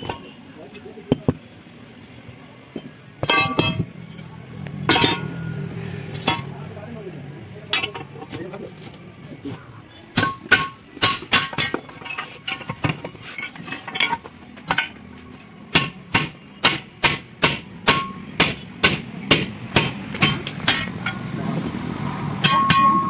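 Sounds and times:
hammer clanging on metal: 2.8s - 4.0s, 4.8s - 6.5s, 7.7s - 8.4s, 10.1s - 15.0s, 15.7s - 21.2s, 22.4s - 23.0s.

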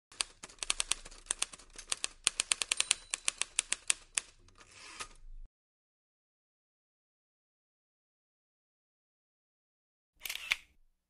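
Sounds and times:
typewriter keys clacking: 0.1s - 4.7s.

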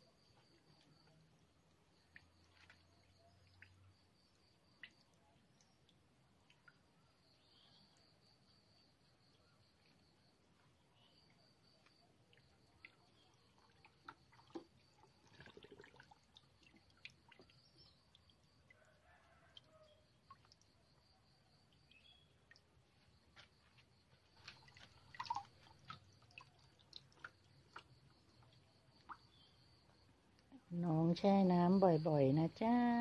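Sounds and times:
water splashes and drips: 0.0s - 33.0s
hose water running into basin: 24.3s - 29.3s.

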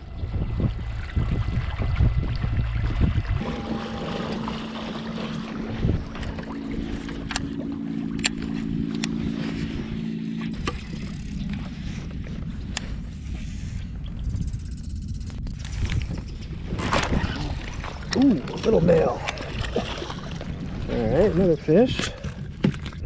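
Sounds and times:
water washing along hull: 0.0s - 13.8s, 16.6s - 23.0s
pedal drive humming: 2.6s - 13.2s.

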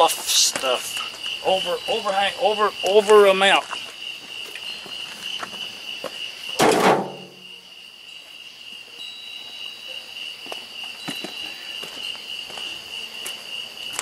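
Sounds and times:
night insects trilling: 0.0s - 14.0s
loud thunk: 6.6s - 7.4s.

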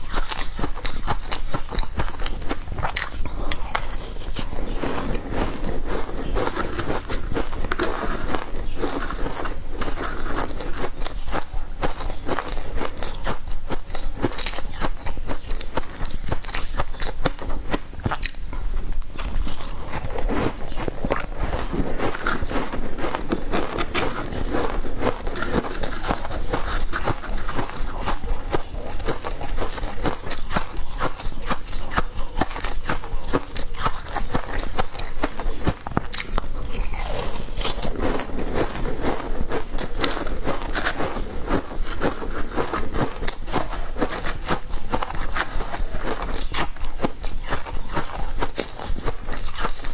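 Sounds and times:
chewing crushed ice: 0.0s - 49.9s.

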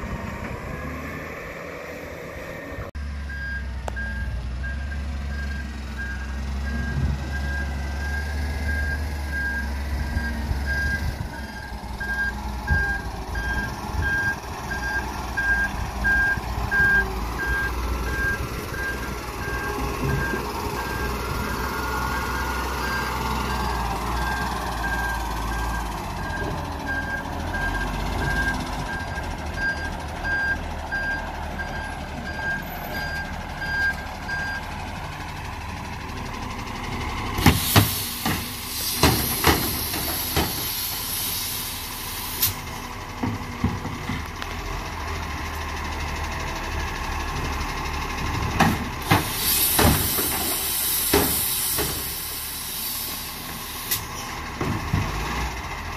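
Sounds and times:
recycling truck running: 0.0s - 55.9s
air hiss: 37.5s - 42.6s, 49.2s - 54.2s.

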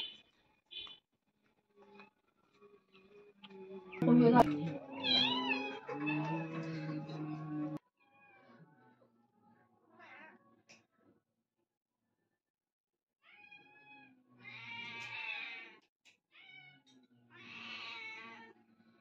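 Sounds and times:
cats meowing: 4.0s - 8.7s, 9.9s - 10.8s, 13.2s - 18.6s.

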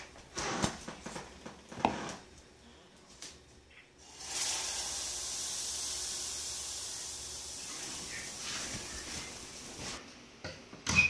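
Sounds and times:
pancake batter sizzling: 4.0s - 10.0s.

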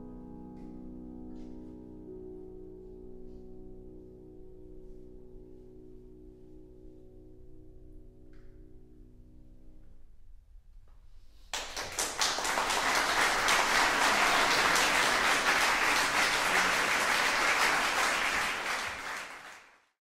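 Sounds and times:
audience applause: 11.6s - 19.9s.

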